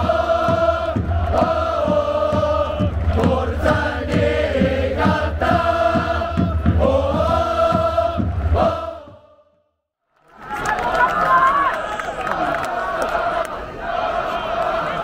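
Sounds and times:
drum beats keeping time: 0:00.0 - 0:09.3
crowd chanting in unison: 0:00.0 - 0:09.7, 0:11.6 - 0:15.0.

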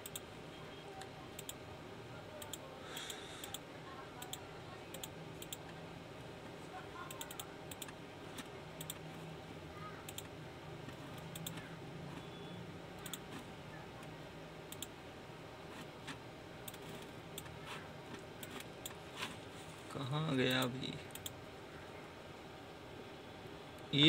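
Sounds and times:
computer mouse clicks: 0:00.0 - 0:00.2, 0:01.0 - 0:01.6, 0:02.4 - 0:03.6, 0:04.2 - 0:05.8, 0:07.0 - 0:09.1, 0:10.1 - 0:10.3, 0:10.9 - 0:11.7, 0:13.0 - 0:13.4, 0:14.7 - 0:14.9, 0:16.0 - 0:17.6, 0:21.1 - 0:21.4
low room hum: 0:00.0 - 0:24.0.

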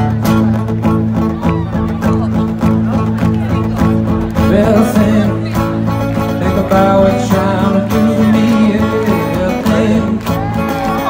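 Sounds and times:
acoustic guitar strumming: 0:00.0 - 0:11.0
person singing: 0:04.4 - 0:11.0.

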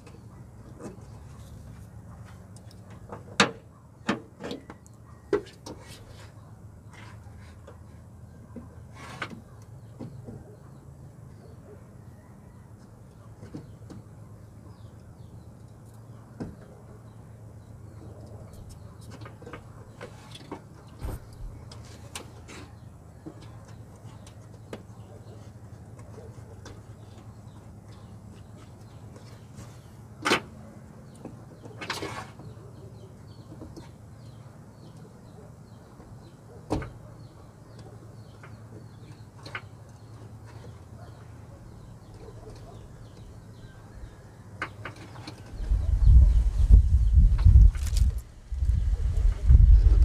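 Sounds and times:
steady low hum: 0:45.5 - 0:50.0.

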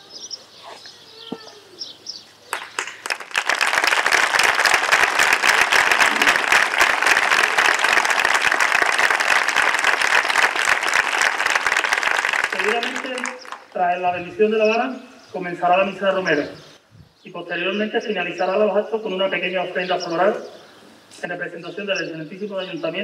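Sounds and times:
crowd applauding: 0:02.5 - 0:13.8.

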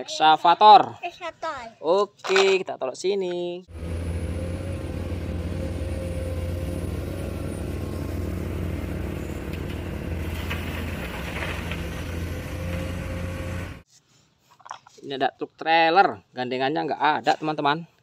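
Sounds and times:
excavator diesel engine drone: 0:03.7 - 0:13.8
gravel being dug and dumped: 0:07.6 - 0:13.8.

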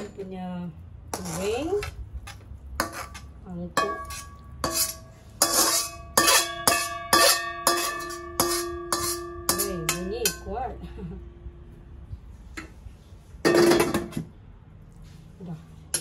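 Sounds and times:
wok scraping: 0:00.0 - 0:00.3, 0:01.0 - 0:10.8, 0:12.3 - 0:16.0
wok knocking and ringing: 0:03.8 - 0:10.7, 0:13.4 - 0:14.2.

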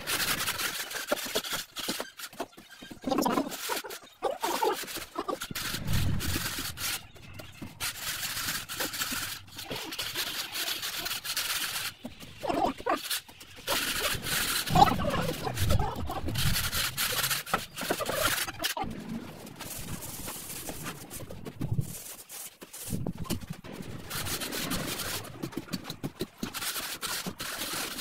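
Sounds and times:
hand scraping sand-cement screed: 0:00.0 - 0:28.0
animal calling in background: 0:12.4 - 0:18.9.

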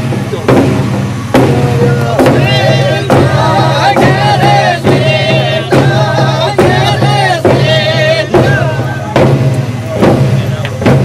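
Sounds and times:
steady drum beat: 0:00.0 - 0:11.0
voices singing with vibrato: 0:01.5 - 0:09.4.

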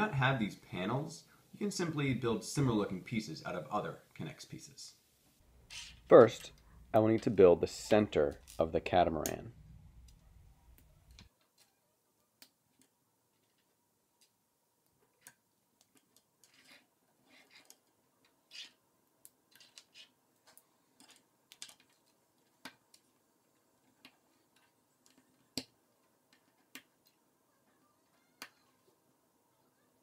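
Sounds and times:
plastic pieces clicking together: 0:19.5 - 0:23.0.

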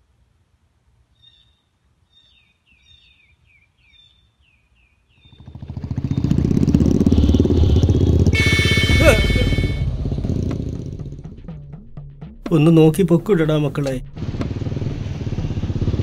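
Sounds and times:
faint bird chirps: 0:01.1 - 0:06.4
motorcycle engine: 0:05.2 - 0:12.5, 0:14.1 - 0:16.0
high steady tone: 0:08.3 - 0:10.3.

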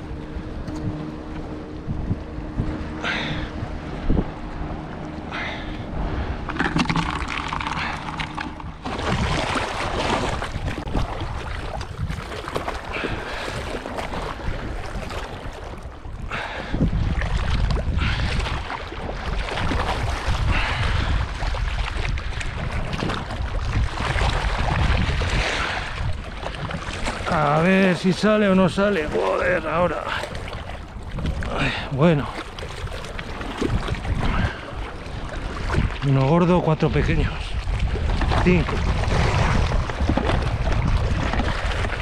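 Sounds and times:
low steady hum: 0:00.0 - 0:24.5
wind buffeting microphone: 0:00.0 - 0:42.0.

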